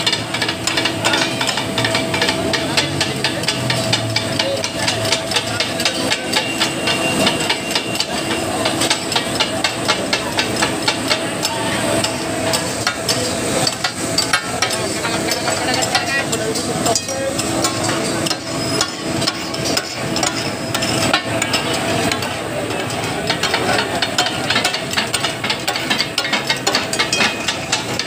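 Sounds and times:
spatulas clattering on iron griddle: 0.0 - 28.0.

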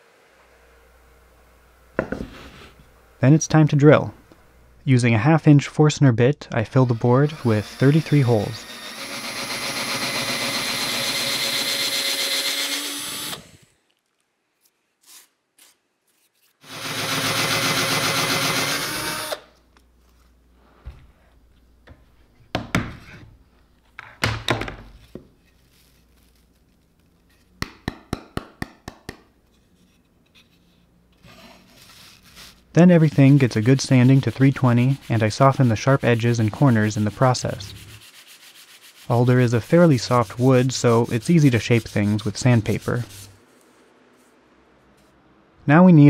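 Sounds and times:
power drill boring into wood: 6.7 - 13.7, 16.6 - 19.5.

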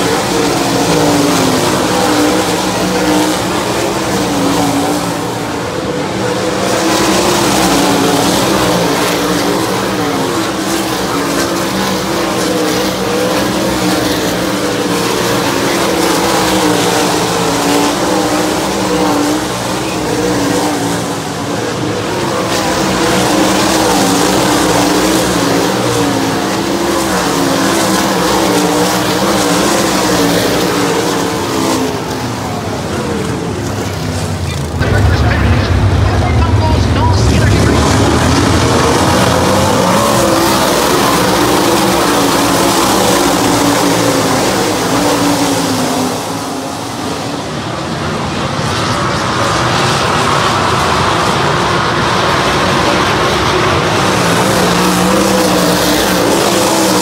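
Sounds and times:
race car engines at high revs: 0.0 - 57.0.

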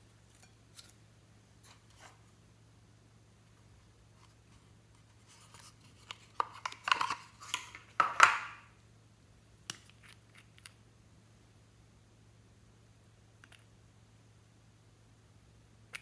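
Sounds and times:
hands handling small objects: 4.1 - 8.7, 9.6 - 10.8.

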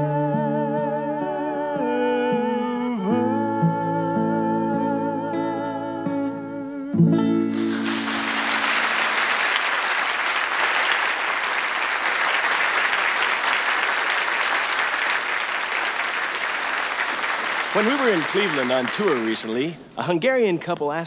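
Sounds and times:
acoustic guitar chord ringing: 6.9 - 9.1
audience applause: 7.5 - 19.7.

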